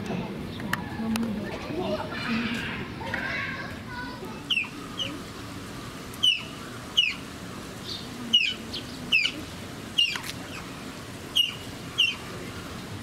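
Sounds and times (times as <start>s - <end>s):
otter chirping: 6.2s - 9.4s, 10.0s - 10.7s, 11.3s - 12.3s.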